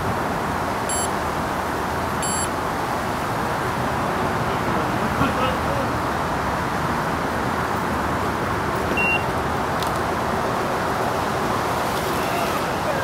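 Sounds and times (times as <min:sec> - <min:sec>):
short high beep: 0:00.9 - 0:01.1, 0:02.2 - 0:02.5, 0:09.0 - 0:09.3.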